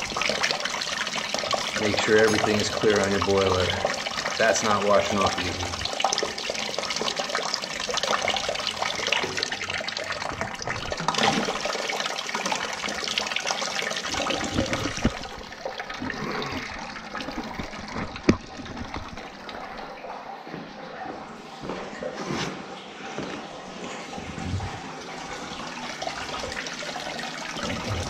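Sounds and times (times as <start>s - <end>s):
water splashing into a bucket: 0.0s - 20.2s.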